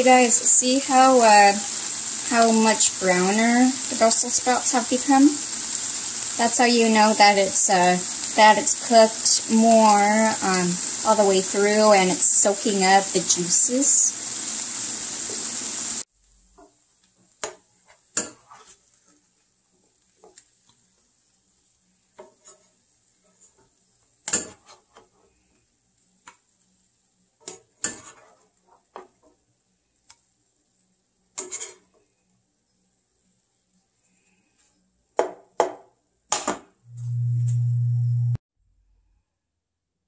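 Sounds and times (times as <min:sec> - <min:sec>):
sprouts sizzling in a frying pan: 0:00.0 - 0:34.7
plastic spoon scraping a pan: 0:17.8 - 0:19.2, 0:22.2 - 0:23.7, 0:24.4 - 0:25.3, 0:27.8 - 0:28.9, 0:31.4 - 0:31.9.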